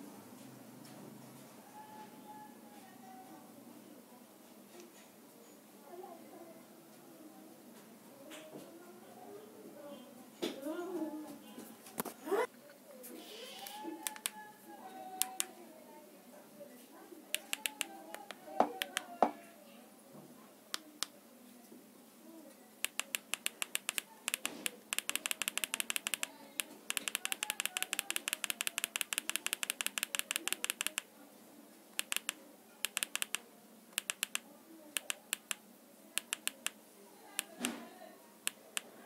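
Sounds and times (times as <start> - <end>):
remote control clicks: 13.6 - 14.4, 15.2 - 15.5, 17.3 - 19.1, 22.8 - 31.1, 32.0 - 34.4, 35.0 - 35.6, 36.2 - 36.8, 37.4 - 37.8.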